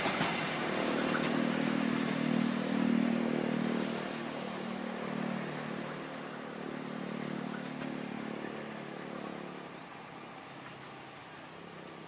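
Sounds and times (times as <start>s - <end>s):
diesel train engine hum: 0.0s - 12.0s
rail noise: 0.0s - 12.0s.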